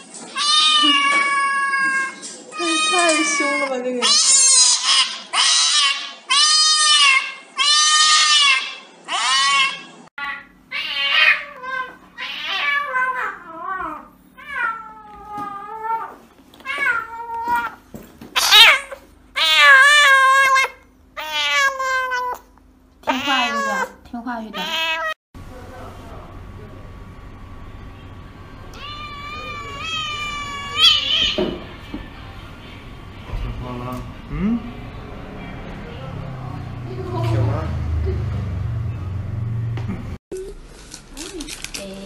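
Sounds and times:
cats meowing and yowling: 0:00.3 - 0:17.8, 0:18.4 - 0:22.5, 0:23.1 - 0:24.0, 0:24.6 - 0:25.2, 0:28.7 - 0:31.8.

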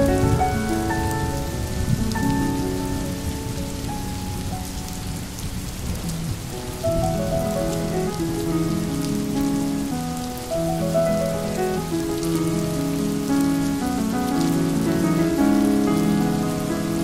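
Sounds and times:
soft slow background music: 0:00.0 - 0:17.0
steady rain falling: 0:00.0 - 0:17.0.

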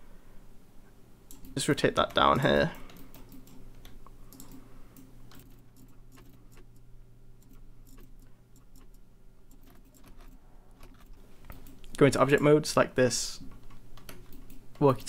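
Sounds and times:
low steady hum: 0:00.0 - 0:15.0
keyboard and mouse clicks: 0:01.3 - 0:12.5, 0:13.4 - 0:15.0.

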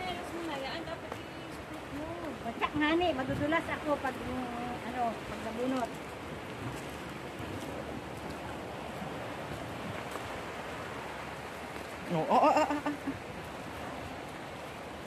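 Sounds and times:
voice: 0:00.0 - 0:05.9, 0:12.1 - 0:13.0
rushing outdoor background noise: 0:00.0 - 0:15.0.

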